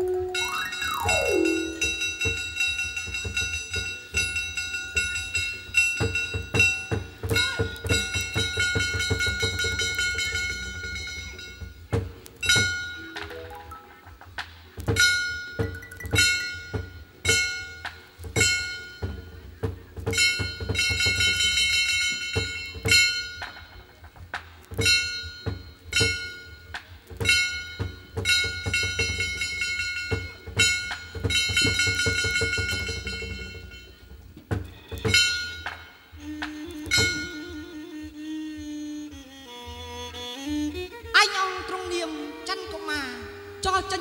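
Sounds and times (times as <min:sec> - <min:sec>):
held melodic note: 0:00.0 - 0:11.7, 0:12.4 - 0:14.3, 0:35.2 - 0:38.4
ringing metal percussion: 0:00.0 - 0:14.3, 0:14.9 - 0:24.2, 0:24.8 - 0:37.6.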